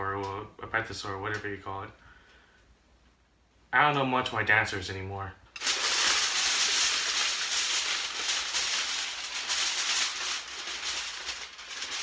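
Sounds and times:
aluminum foil crinkling: 5.6 - 12.0.

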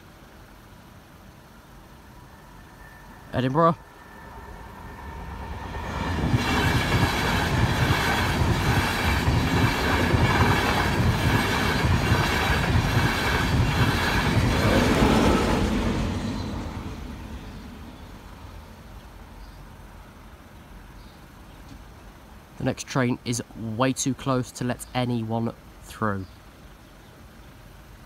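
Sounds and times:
express train passing: 1.7 - 19.4.

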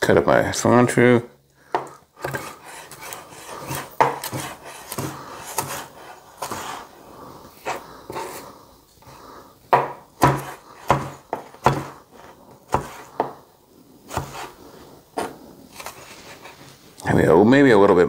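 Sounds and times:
knife chopping on cutting board: 1.8 - 6.8, 9.7 - 13.4, 14.1 - 14.6.

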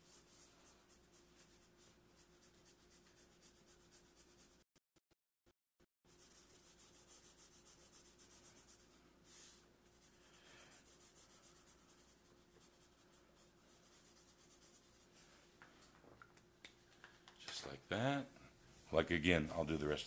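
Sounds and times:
marker scratching on paper: 0.0 - 4.7, 6.1 - 15.2.

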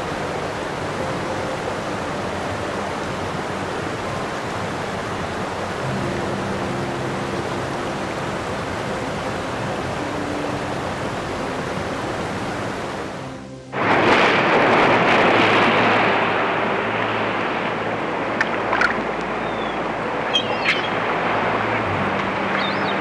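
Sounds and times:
ocean waves washing: 0.0 - 23.0
sea water rushing and splashing: 0.0 - 23.0
soft background music: 0.0 - 23.0
short high chirps: 19.4 - 21.0.

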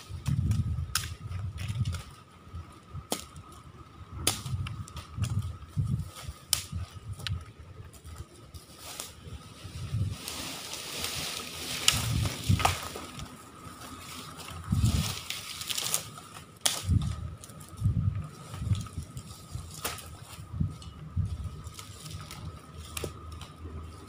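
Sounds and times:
dry branches cracking: 0.0 - 24.0
low irregular rumbling: 0.0 - 24.0.

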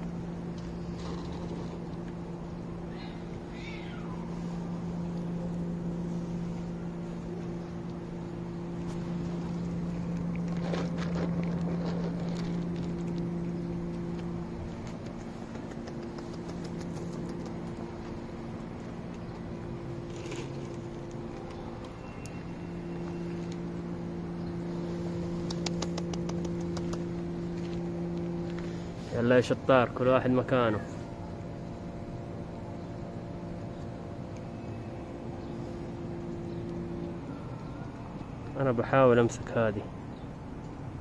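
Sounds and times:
low mechanical hum: 0.0 - 41.0
cat crunching dry kibble: 0.1 - 2.6, 4.3 - 29.0
cat meowing: 2.9 - 4.4.

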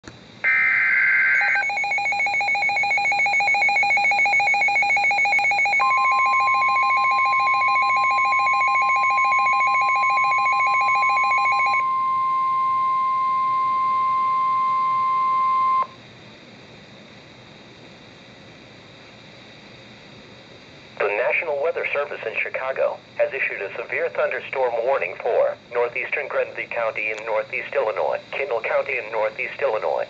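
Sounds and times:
steady single-pitch alarm tone: 0.4 - 16.0.

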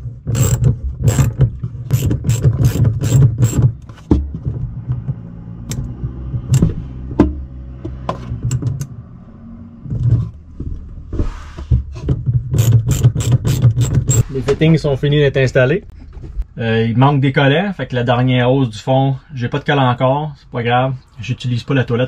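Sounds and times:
socket ratchet clicking: 0.4 - 3.6, 12.6 - 14.2.

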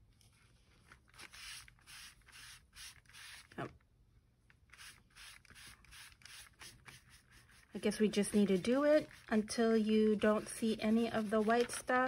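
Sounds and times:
sponge scrubbing paper: 4.8 - 12.0.

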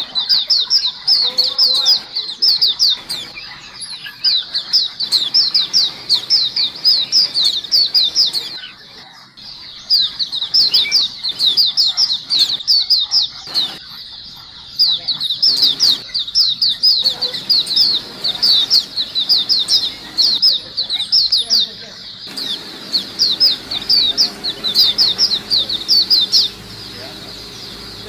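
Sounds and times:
flock of small birds chirping: 0.0 - 28.0.

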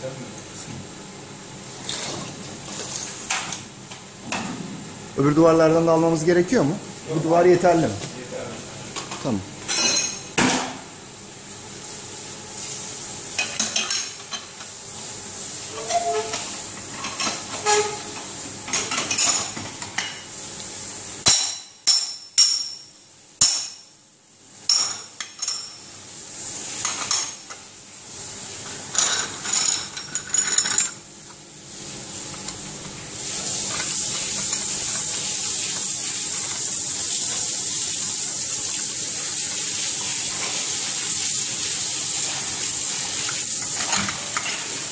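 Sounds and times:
running water hissing: 11.7 - 18.8, 31.6 - 44.9.

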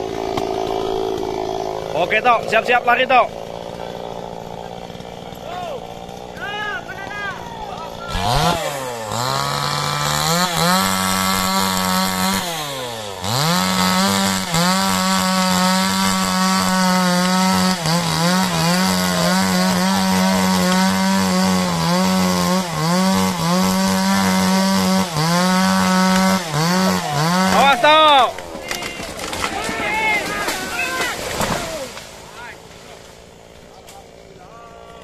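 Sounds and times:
chainsaw cutting wood: 0.0 - 34.4
man talking: 1.9 - 3.3, 19.1 - 20.9, 26.9 - 32.6.

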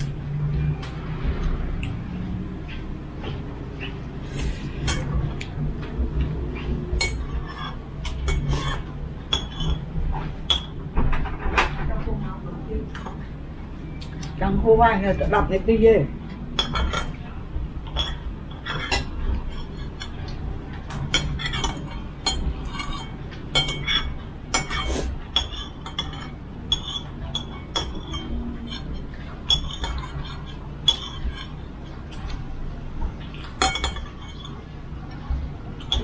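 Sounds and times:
spoons clinking on bowls: 6.9 - 10.8, 16.5 - 32.5, 33.2 - 34.7.

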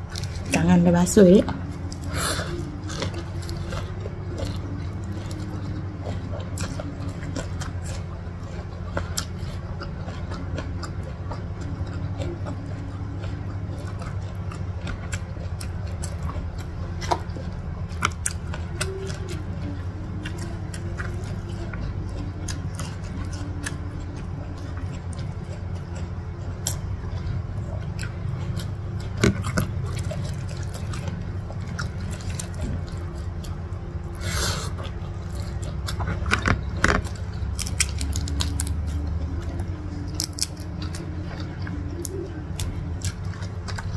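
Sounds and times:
steady low hum: 0.0 - 43.9
chewing and mouth smacks: 1.4 - 43.9
prawn shell peeling crackles: 35.2 - 39.0, 40.0 - 41.1.

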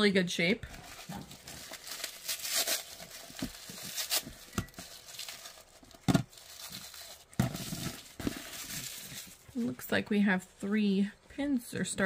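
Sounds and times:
tissue paper crinkling and tearing: 0.7 - 9.8.

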